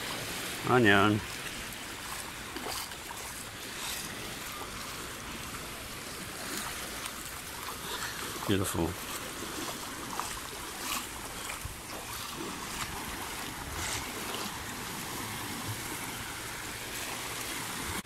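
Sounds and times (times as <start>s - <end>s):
small waves washing on sand: 0.0s - 18.0s.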